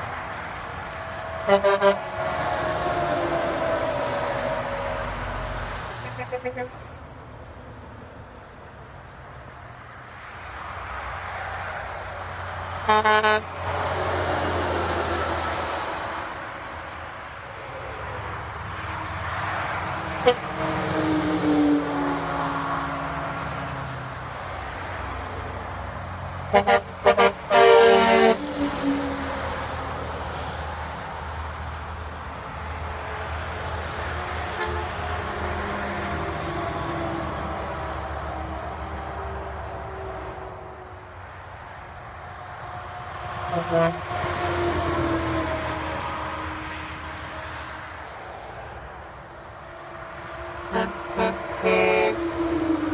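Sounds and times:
diesel truck passing: 0:00.0 - 0:52.9
truck air horn toot: 0:01.4 - 0:02.5, 0:06.0 - 0:06.9, 0:12.8 - 0:13.6, 0:20.1 - 0:21.7, 0:26.5 - 0:29.4, 0:34.5 - 0:35.2, 0:43.5 - 0:44.4, 0:50.3 - 0:52.9.

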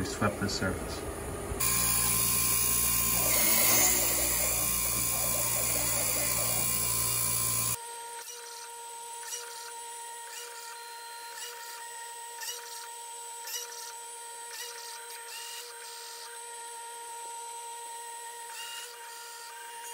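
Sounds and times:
milling machine whine: 0:01.6 - 0:07.8.

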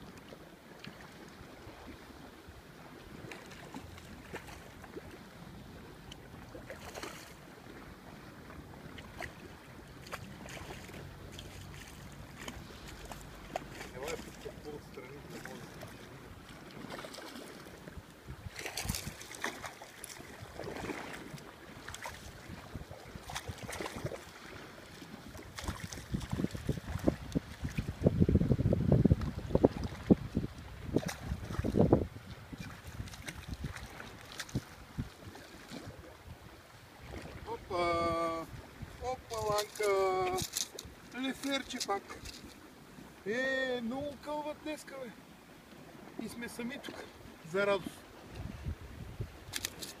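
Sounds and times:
lapping sea water: 0:00.0 - 0:50.0
wind: 0:00.0 - 0:50.0
fish splashing at water surface: 0:18.6 - 0:22.5, 0:23.2 - 0:27.7.

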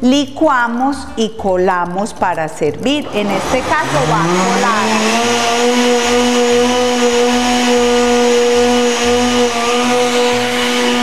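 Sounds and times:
blender running: 0:02.8 - 0:11.0.

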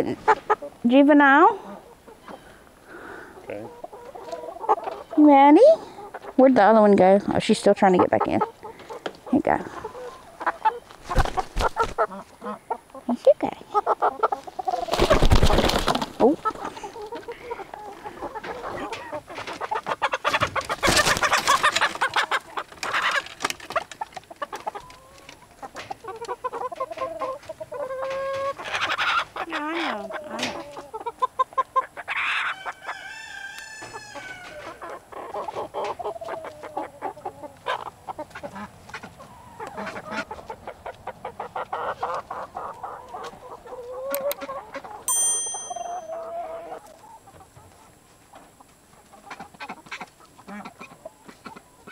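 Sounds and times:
chickens clucking and squawking: 0:00.0 - 0:51.9
rooster crowing: 0:32.2 - 0:34.7.

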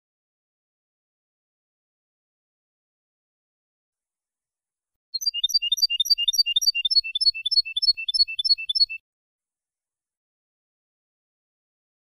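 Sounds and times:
goldfinch singing: 0:05.2 - 0:09.0.

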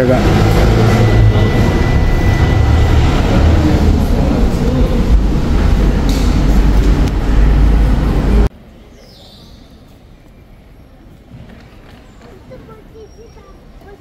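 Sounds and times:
loud low rumbling: 0:00.0 - 0:08.5
faint terminal hall ambience: 0:00.0 - 0:14.0.

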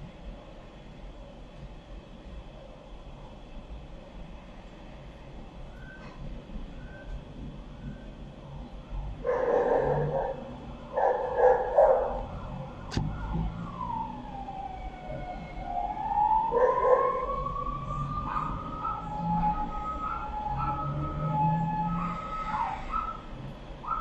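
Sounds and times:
siren wailing: 0:08.9 - 0:24.0.

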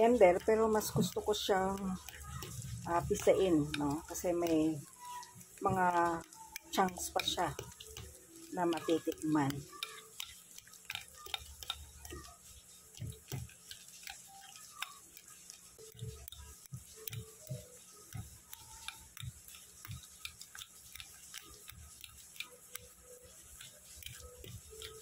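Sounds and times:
fork mashing bananas: 0:00.0 - 0:25.0
fork clicking against glass: 0:06.2 - 0:08.1, 0:08.7 - 0:12.4, 0:13.0 - 0:25.0.

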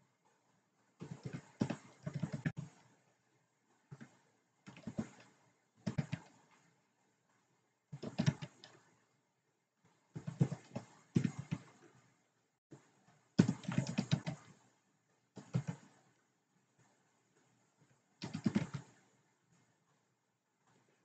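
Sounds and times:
typing on a keyboard: 0:01.0 - 0:02.8, 0:03.9 - 0:06.5, 0:08.0 - 0:08.8, 0:10.2 - 0:11.8, 0:13.4 - 0:14.6, 0:15.4 - 0:16.0, 0:18.2 - 0:19.1.

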